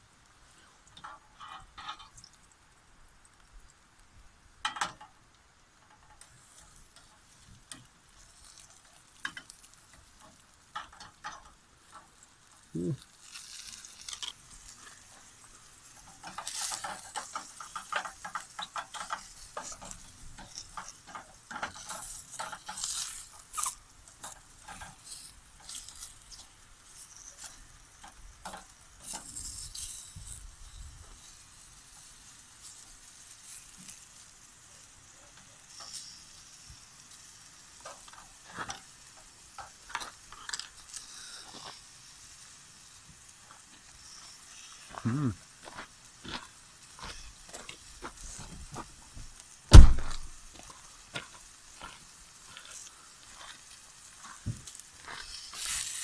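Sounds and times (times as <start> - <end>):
mushrooms sizzling in oil: 0.0 - 56.0
stirring scraping and clattering: 0.9 - 2.2, 13.6 - 26.5.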